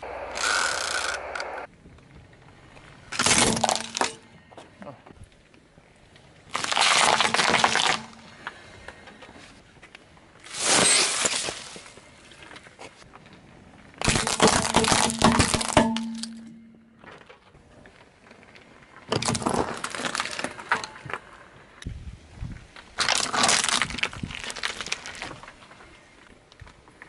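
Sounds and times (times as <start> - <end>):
tyre crushing objects: 3.2 - 4.2, 6.6 - 8.3, 14.0 - 17.2.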